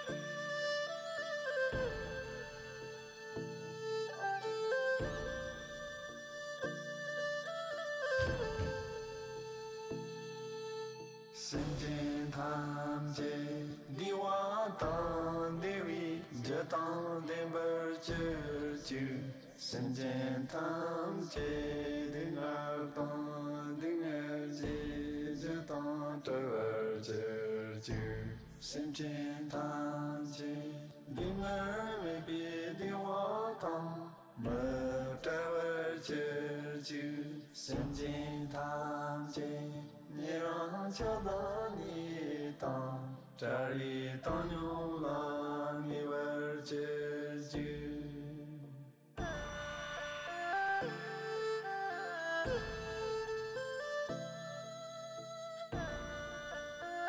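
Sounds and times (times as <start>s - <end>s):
person chanting mantra: 11.4s - 49.6s.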